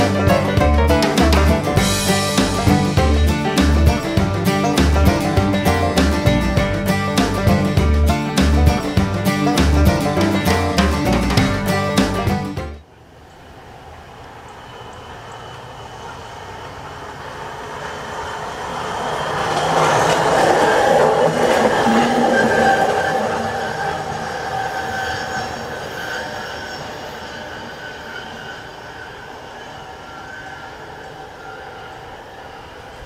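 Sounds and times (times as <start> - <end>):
wheels rumbling on rails: 0.0 - 33.0
high ringing tone: 21.8 - 32.8.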